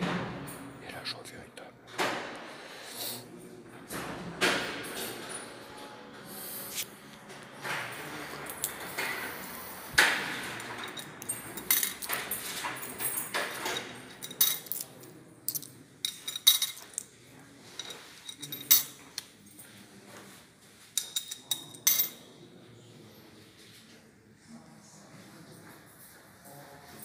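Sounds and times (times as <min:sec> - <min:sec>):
coins clinking through metal slot: 0:10.0 - 0:17.0.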